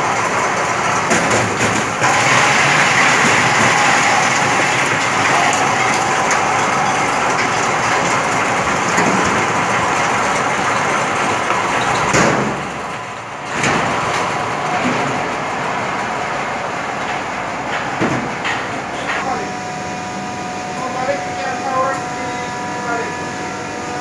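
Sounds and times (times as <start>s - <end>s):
ice crusher motor running: 0.0s - 14.5s
crushed ice sliding down chute: 2.0s - 8.8s.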